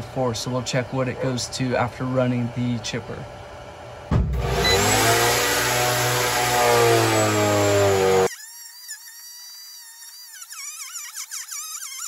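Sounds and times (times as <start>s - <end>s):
chipper shredder grinding branches: 4.4s - 8.3s.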